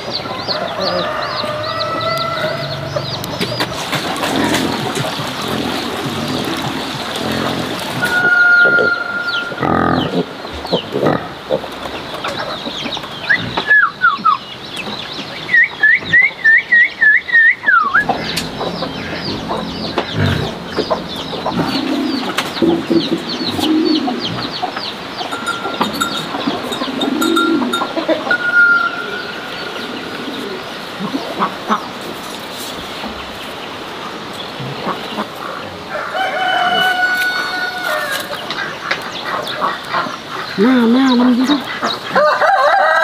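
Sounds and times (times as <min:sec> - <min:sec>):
poultry calling: 0:17.8 - 0:32.0.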